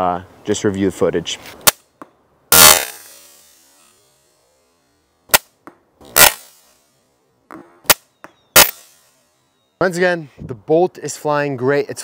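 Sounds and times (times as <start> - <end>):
bolts striking target: 1.6 - 3.9, 5.3 - 6.8, 7.4 - 9.2
crossbow shots: 2.5 - 3.4, 5.3 - 6.7, 7.5 - 9.2.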